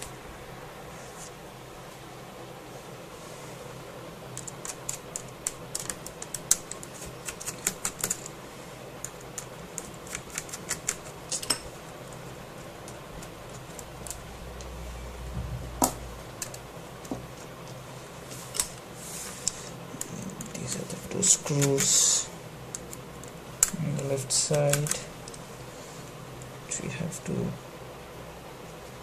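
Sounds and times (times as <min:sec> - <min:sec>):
loud knock: 0:15.3 - 0:16.2.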